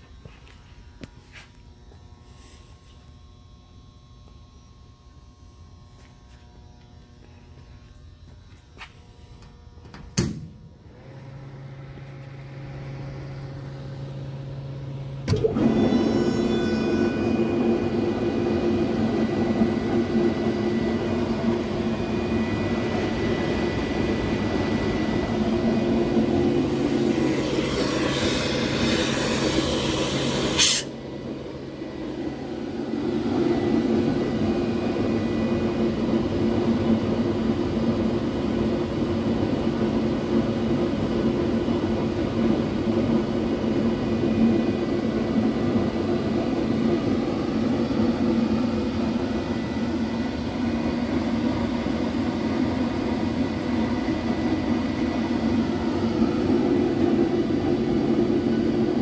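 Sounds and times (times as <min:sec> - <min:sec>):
air compressor humming: 0:00.0 - 0:59.0
air hiss ending in burst: 0:28.0 - 0:30.9.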